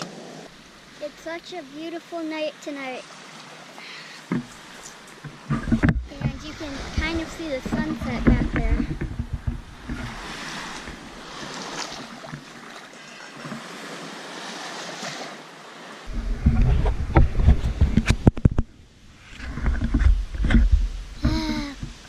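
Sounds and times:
small waves lapping on shore: 0:00.0 - 0:22.0
camera handling rumble and knocks: 0:05.2 - 0:06.4, 0:07.6 - 0:10.2, 0:16.1 - 0:18.7, 0:19.3 - 0:22.0.

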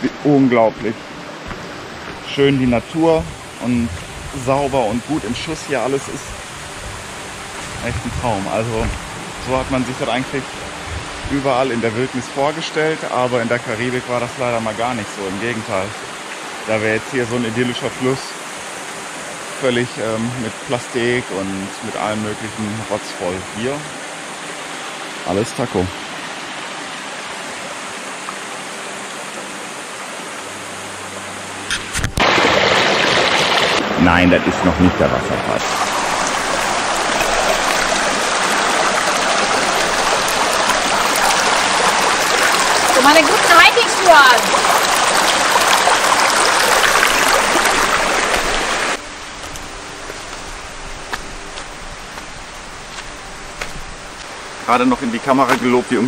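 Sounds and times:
stream running over rocks: 0:00.0 - 0:56.0.

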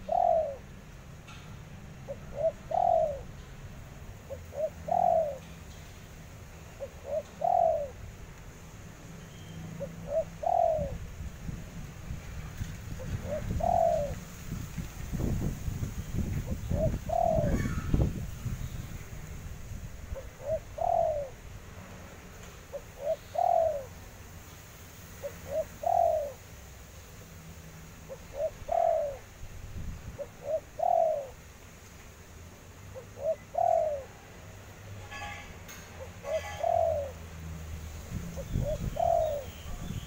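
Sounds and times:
dove cooing: 0:00.0 - 0:00.9, 0:02.0 - 0:03.4, 0:04.2 - 0:05.5, 0:06.8 - 0:08.0, 0:09.8 - 0:11.1, 0:12.9 - 0:14.2, 0:16.2 - 0:18.6, 0:20.1 - 0:21.4, 0:22.7 - 0:24.0, 0:25.2 - 0:26.4, 0:28.0 - 0:29.3, 0:30.2 - 0:31.4, 0:32.9 - 0:34.3, 0:35.9 - 0:37.2, 0:38.4 - 0:39.9.

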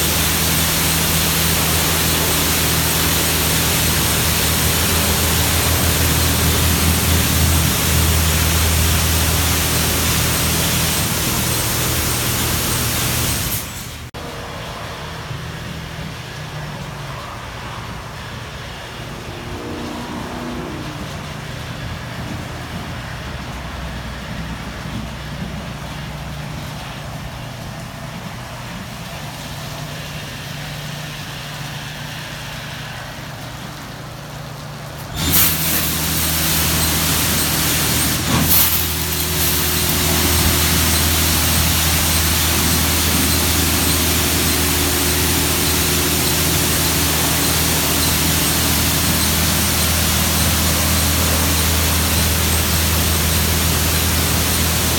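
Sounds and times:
high-pressure water spray hissing: 0:00.0 - 0:14.1, 0:35.0 - 0:54.9
machine humming: 0:00.0 - 0:14.1, 0:35.1 - 0:54.9
pump motor drone: 0:00.0 - 0:54.9.

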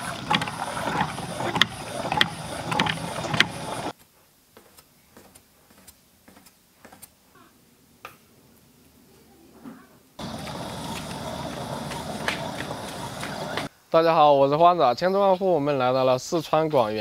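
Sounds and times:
stone mill grinding: 0:00.0 - 0:03.9, 0:10.2 - 0:13.7.

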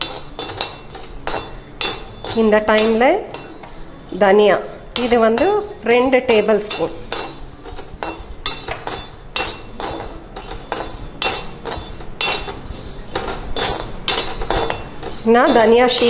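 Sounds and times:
dry grains rattling on metal: 0:00.0 - 0:16.0
metal ladle scraping a pan: 0:00.0 - 0:16.0.

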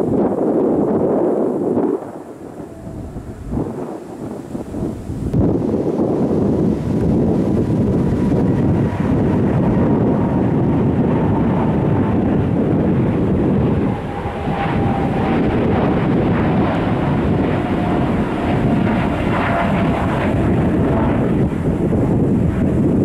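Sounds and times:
jet engine roar: 0:00.0 - 0:23.0
jet fan whine: 0:00.0 - 0:23.0.

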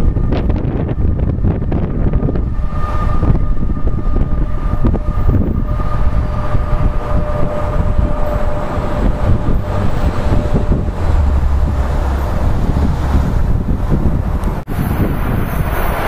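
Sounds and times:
electric train rumbling: 0:00.0 - 0:16.0
electrical whine: 0:00.0 - 0:16.0
wind buffeting microphone: 0:00.0 - 0:16.0.

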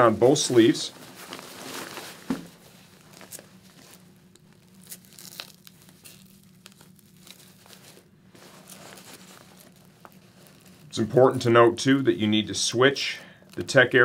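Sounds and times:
fabric rustling and crinkling: 0:00.0 - 0:12.3
velcro ripping: 0:01.2 - 0:10.9.

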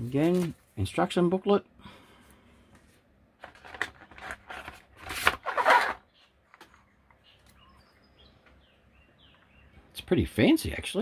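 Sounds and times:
plastic scraping against packaging: 0:03.4 - 0:06.2.

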